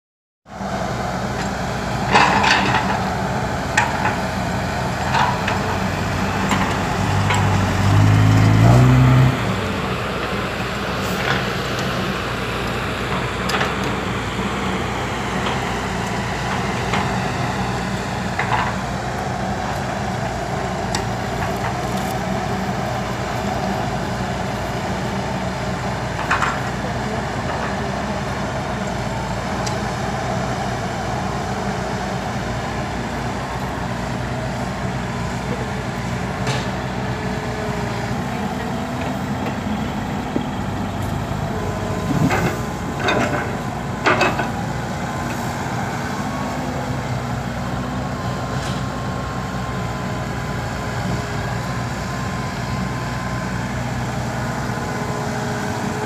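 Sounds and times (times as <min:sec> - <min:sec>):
heavy diesel engines: 0:00.5 - 0:56.0
engine revving up: 0:06.0 - 0:10.0
knocks and clanks: 0:42.0 - 0:44.6.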